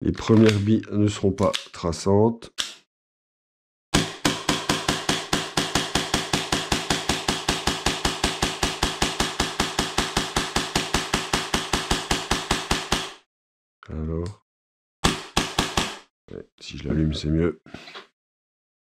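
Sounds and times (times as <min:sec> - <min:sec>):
airsoft pistol firing: 0:04.0 - 0:13.2, 0:15.0 - 0:16.0.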